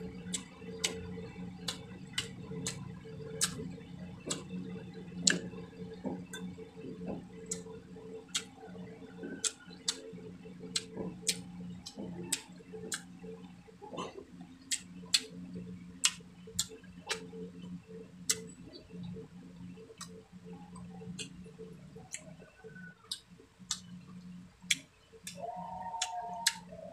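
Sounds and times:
steady low hum: 0.0 - 26.9
chewing and lip-smacking: 0.2 - 4.6, 6.2 - 17.7, 22.0 - 22.4, 23.1 - 26.7.

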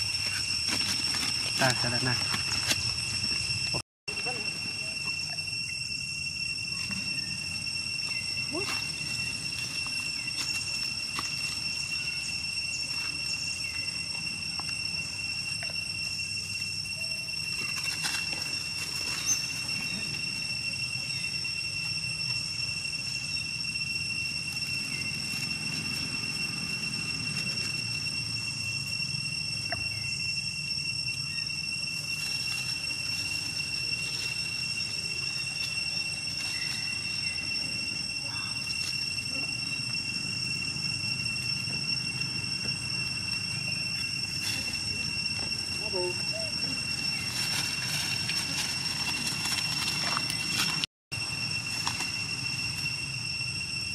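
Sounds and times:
insects droning: 0.0 - 53.9.

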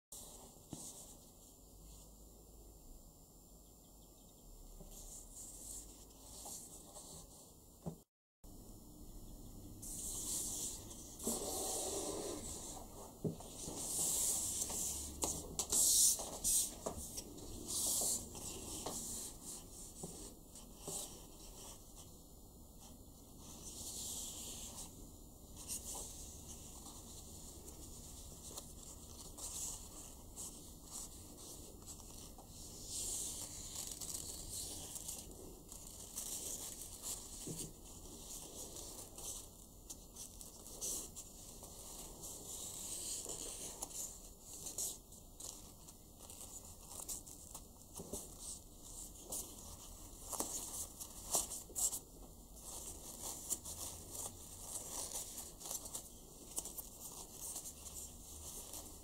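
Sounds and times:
ribbon rustling and swishing: 9.8 - 22.1, 25.5 - 59.0.

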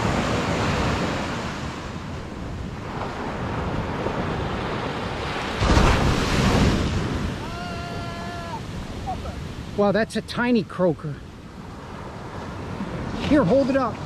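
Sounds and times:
wind buffeting microphone: 0.0 - 9.8
ocean surf on a beach: 0.0 - 14.0.

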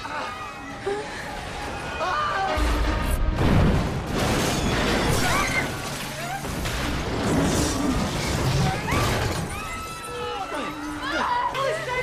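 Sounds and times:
crashing metal and shattering glass: 2.6 - 10.5.

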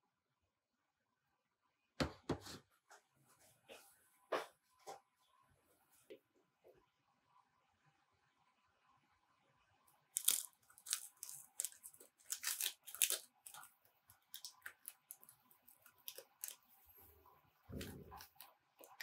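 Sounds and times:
foil packet crinkling and tearing: 10.1 - 16.8.

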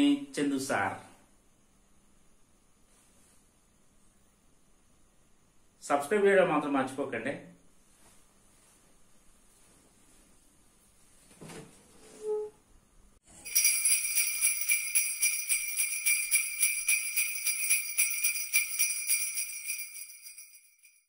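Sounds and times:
sleigh bells jingling: 13.3 - 21.0.

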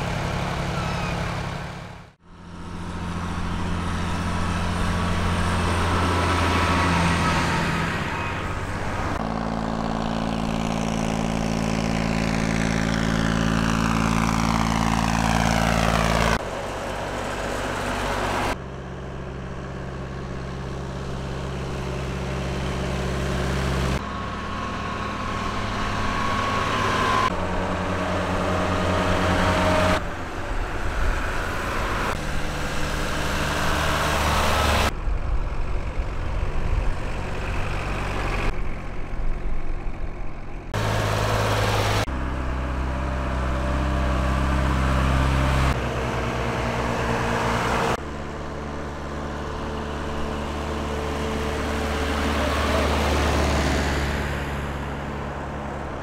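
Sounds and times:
tractor engines running: 0.0 - 56.0.

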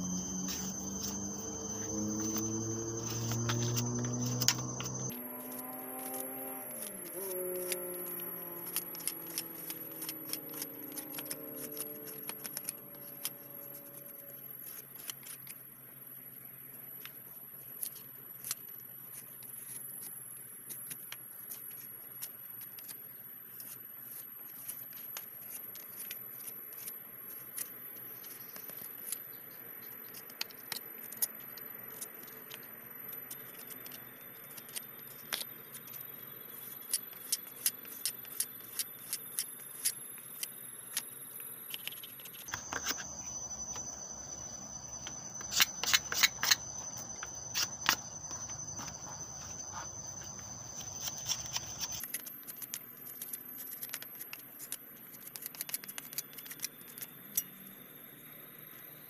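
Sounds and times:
knife whittling a branch: 0.0 - 14.0, 42.3 - 52.1.

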